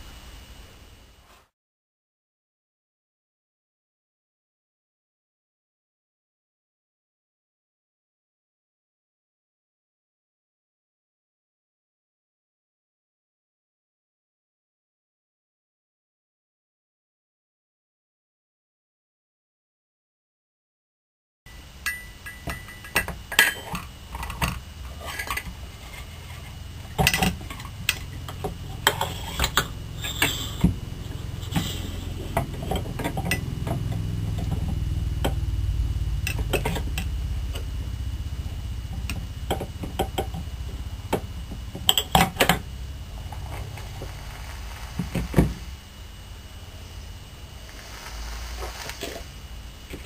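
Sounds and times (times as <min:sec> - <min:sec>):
metal parts clinking: 0:22.2 - 0:26.1
low rumble: 0:29.7 - 0:41.9.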